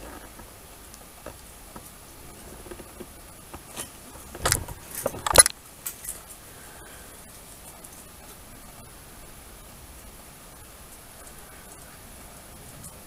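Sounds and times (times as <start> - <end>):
clinking and rattling: 2.2 - 6.4.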